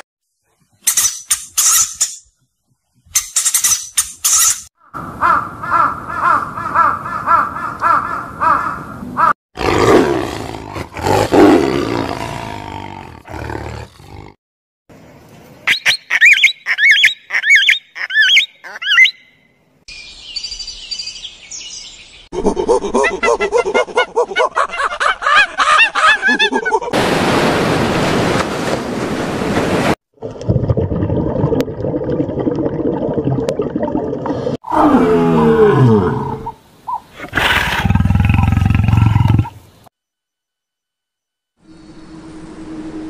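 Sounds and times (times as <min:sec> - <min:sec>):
tiger roaring: 0:09.6 - 0:14.4
high chirping calls: 0:15.7 - 0:22.3.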